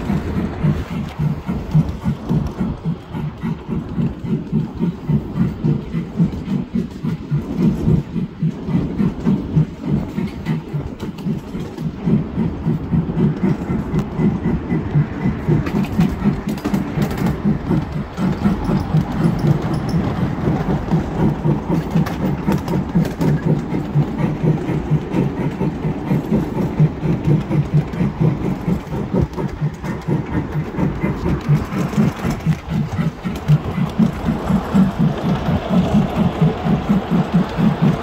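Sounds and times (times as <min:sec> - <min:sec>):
rhythmic clatter of train wheels: 0:00.0 - 0:38.0.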